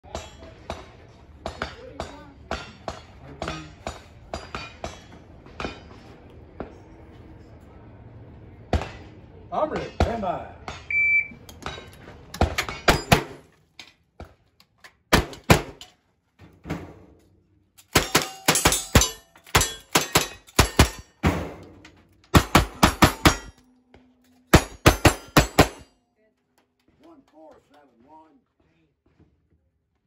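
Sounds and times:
bullets clanging on steel targets: 0:11.5 - 0:13.9, 0:17.8 - 0:26.0
rapid gunshots: 0:22.4 - 0:23.5, 0:24.5 - 0:25.8.

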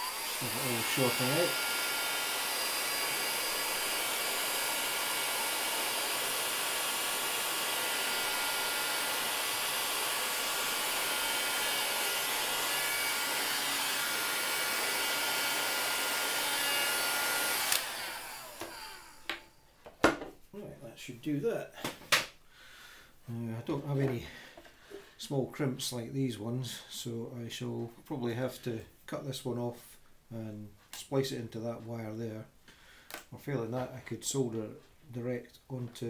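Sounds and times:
hot air gun blowing: 0:00.0 - 0:19.4.

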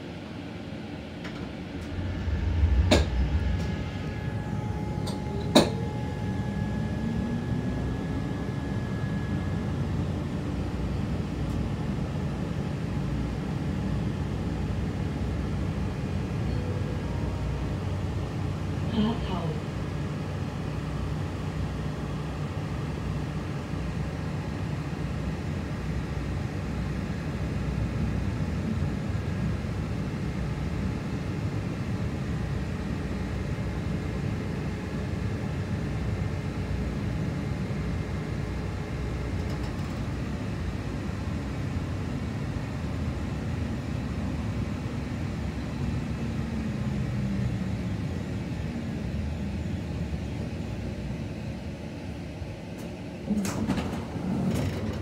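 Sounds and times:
tram wheels rumbling: 0:00.0 - 0:22.2, 0:38.5 - 0:41.4, 0:52.7 - 0:55.0
tram motor whine: 0:00.0 - 0:55.0.

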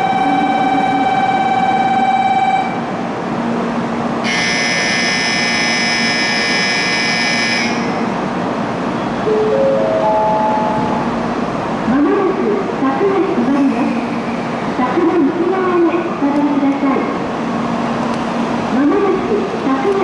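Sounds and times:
rising electronic chime: 0:09.3 - 0:11.2.

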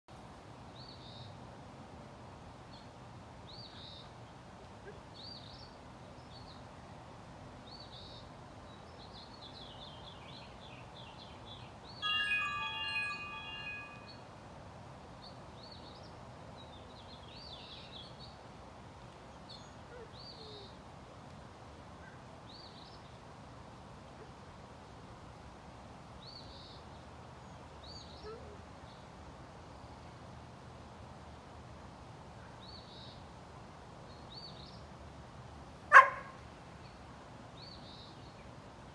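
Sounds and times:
outdoor background hiss: 0:00.1 - 0:38.9
songbirds chirping: 0:02.3 - 0:14.3, 0:15.1 - 0:18.5, 0:32.4 - 0:38.9
wind chime ringing: 0:12.0 - 0:14.2.

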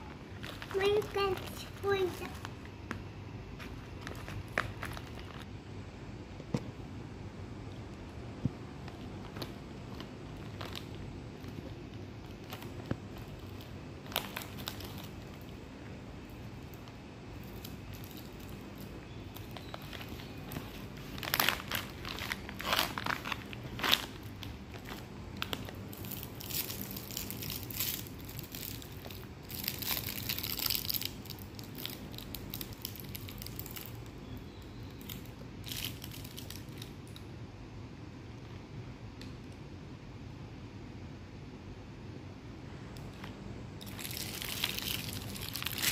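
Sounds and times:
plastic bag crinkling: 0:00.0 - 0:02.7, 0:03.5 - 0:05.5, 0:08.9 - 0:36.9, 0:43.8 - 0:45.9
low background hum: 0:00.0 - 0:45.9.

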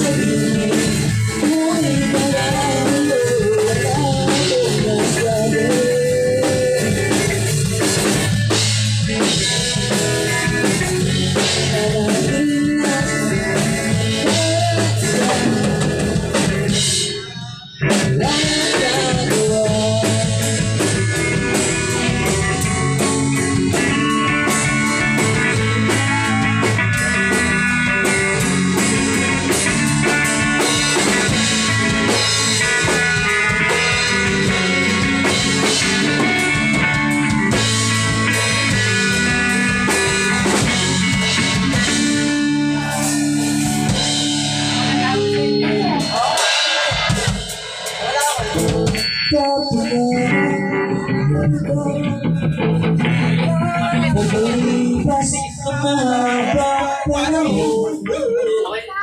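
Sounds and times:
person singing: 0:00.0 - 0:07.4, 0:10.7 - 0:28.9, 0:39.8 - 0:47.4, 0:48.0 - 0:59.0
rock band playing: 0:00.0 - 0:59.0.

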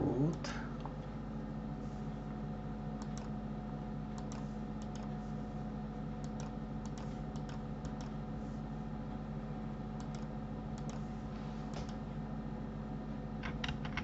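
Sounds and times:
steady low hum: 0:00.0 - 0:14.0
computer keys clicking: 0:03.0 - 0:03.4, 0:04.1 - 0:05.1, 0:06.2 - 0:08.2, 0:10.0 - 0:11.1.

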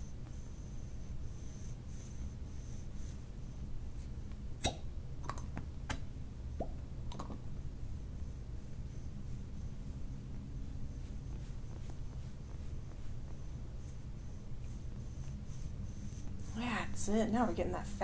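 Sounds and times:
cupping cup pops and clicks: 0:04.6 - 0:06.0, 0:06.6 - 0:07.4.

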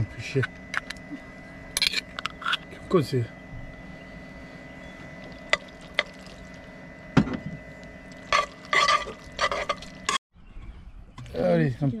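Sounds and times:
steady hum: 0:00.0 - 0:10.2
spoon scraping wet pasta: 0:08.2 - 0:10.2.

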